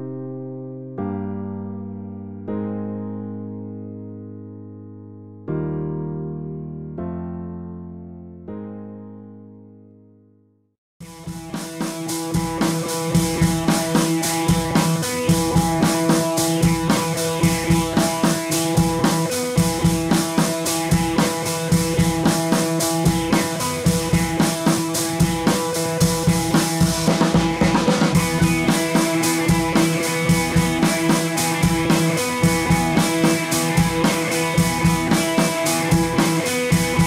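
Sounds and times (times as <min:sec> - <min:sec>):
drum kit steady beat: 0:11.0 - 0:37.0
held music tones: 0:11.0 - 0:37.0.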